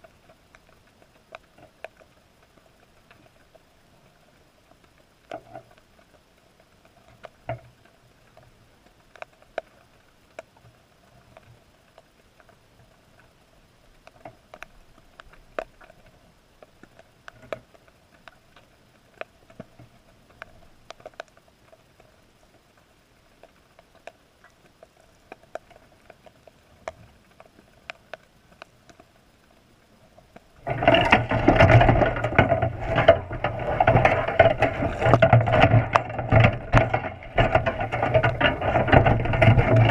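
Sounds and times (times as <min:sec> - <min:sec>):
faint underwater clicks: 0:00.0 - 0:39.9
low steady underwater hum: 0:00.0 - 0:39.9
rushing knocking underwater din: 0:30.6 - 0:39.9.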